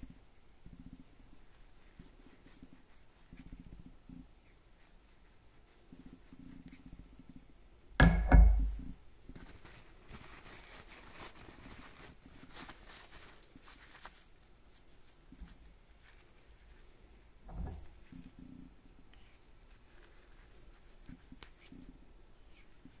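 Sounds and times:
metallic clank with ring: 8.0 - 8.8.

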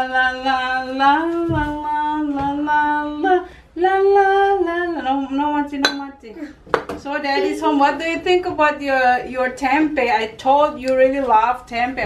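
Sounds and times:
woman singing long notes: 0.0 - 6.4.

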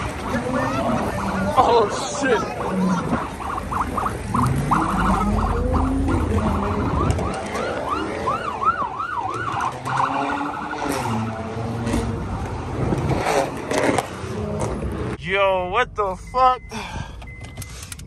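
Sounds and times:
police siren warbling: 0.0 - 12.3
car engines revving: 0.0 - 16.8.

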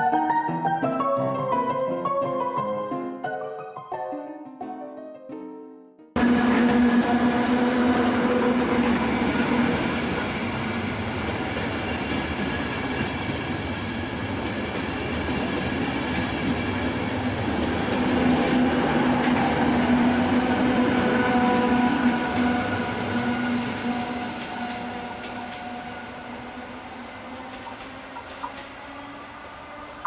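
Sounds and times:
train wheels rumbling: 6.2 - 30.0.

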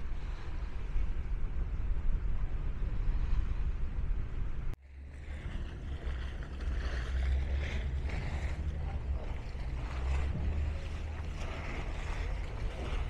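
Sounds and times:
boat engine rumble: 0.0 - 13.0
wind noise on microphone: 0.0 - 13.0.

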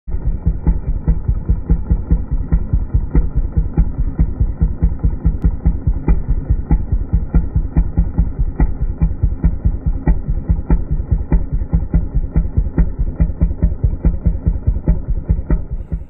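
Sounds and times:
muffled engine idling: 0.1 - 16.0.

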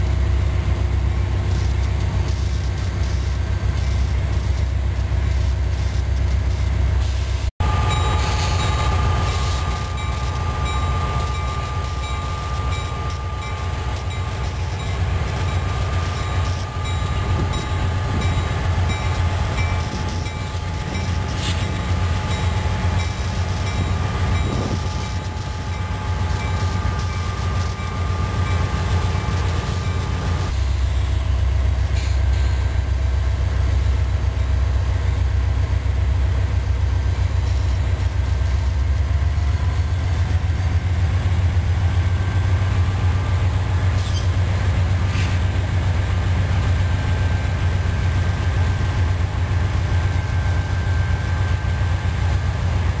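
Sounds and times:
deep locomotive engine rumble: 0.0 - 53.0
thin high tone: 7.6 - 30.2.

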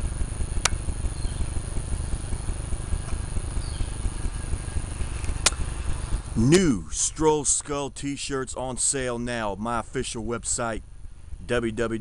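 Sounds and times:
low rumbling background noise: 0.0 - 12.0
sharp click: 0.6 - 0.8, 5.1 - 5.6.

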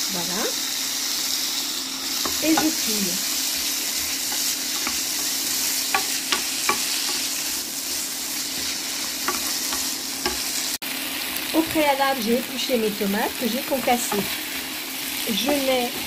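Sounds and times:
food sizzling in a frying pan: 0.0 - 16.0
spatula tapping a pan: 2.2 - 2.8, 4.0 - 7.3, 8.6 - 10.5, 15.4 - 16.0.

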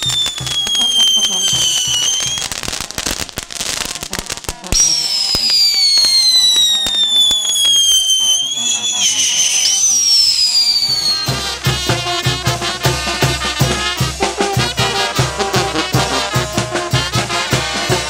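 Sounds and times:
brass band playing: 0.0 - 6.4, 10.7 - 18.0
firecracker pops: 0.0 - 11.4
firework whistle falling in pitch: 0.0 - 11.4.

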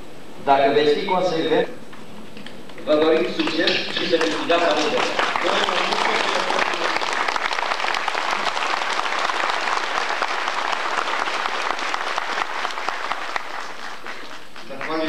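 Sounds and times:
audience applauding: 3.2 - 15.0.

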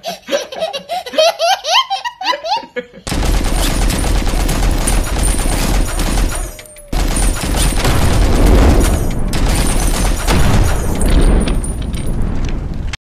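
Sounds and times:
rapid gunfire: 3.1 - 12.0.

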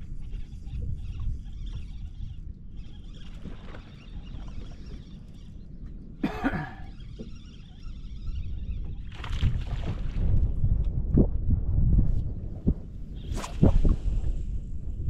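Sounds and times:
person coughing: 6.2 - 6.9
steady low rumble: 8.3 - 15.0.

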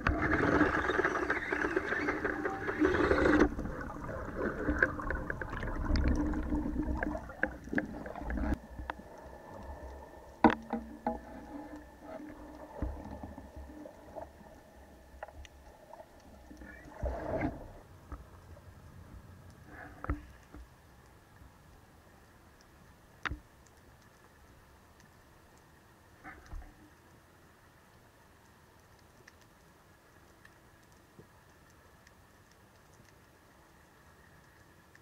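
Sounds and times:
rush of water: 0.0 - 17.9
underwater water noise: 0.0 - 35.0.

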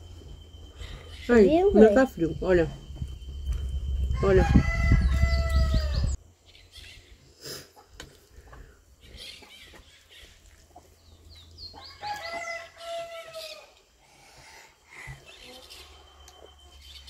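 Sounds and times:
rooster crowing: 4.1 - 6.2, 11.8 - 13.8.

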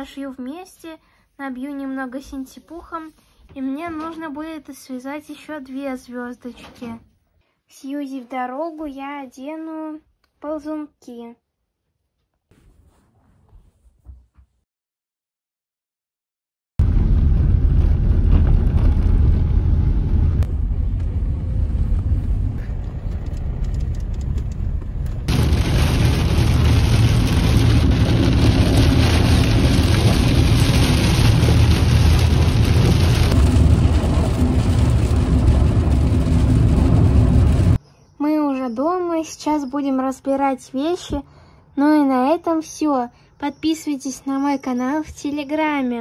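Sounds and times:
car road noise rumble: 16.8 - 37.8.

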